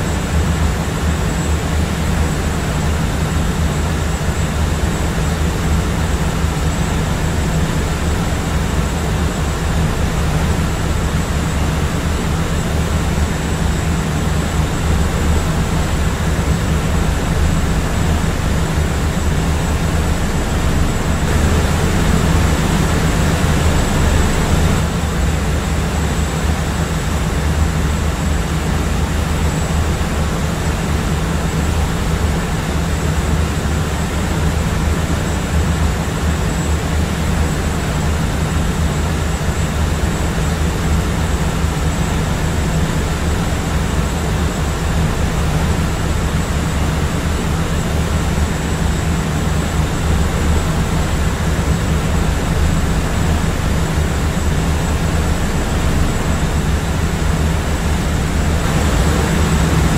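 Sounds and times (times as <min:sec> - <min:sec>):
airplane engine drone: 0:00.0 - 0:59.9
thin high whine: 0:11.4 - 0:25.2.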